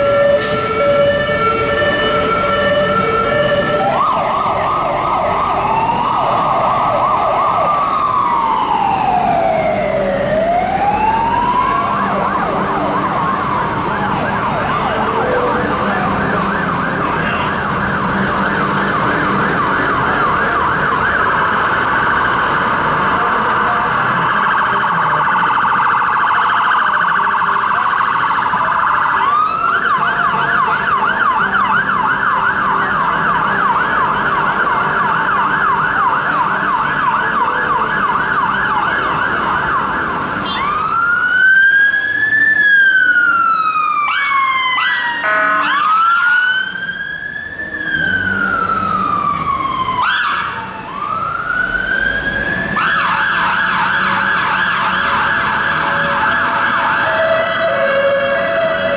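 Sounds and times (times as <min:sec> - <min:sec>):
emergency siren yelping: 0:00.0 - 0:58.9
low traffic rumble: 0:00.0 - 0:58.9.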